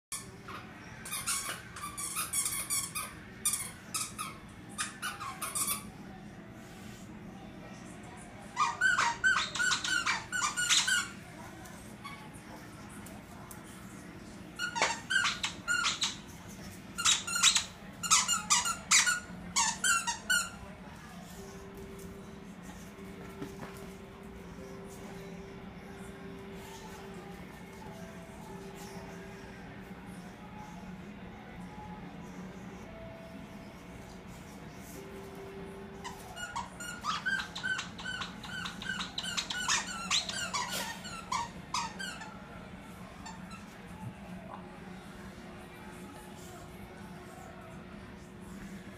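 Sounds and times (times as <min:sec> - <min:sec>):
squeaky toy squeaking: 0:01.0 - 0:05.9, 0:08.6 - 0:11.2, 0:14.6 - 0:16.2, 0:17.0 - 0:20.6, 0:36.0 - 0:42.4.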